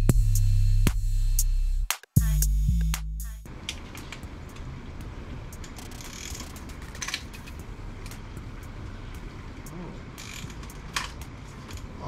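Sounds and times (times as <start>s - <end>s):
low background rumble: 2.7s - 12.0s
socket ratchet clicking: 5.5s - 8.2s, 10.2s - 11.9s.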